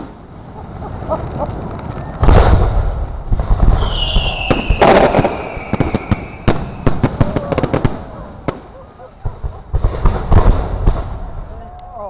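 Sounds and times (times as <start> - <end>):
high falling whistle: 3.8 - 6.5.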